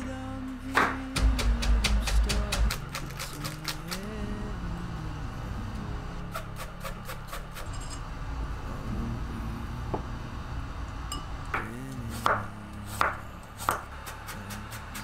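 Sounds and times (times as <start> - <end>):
background music: 0.0 - 15.0
knife chopping on wooden board: 11.6 - 14.2.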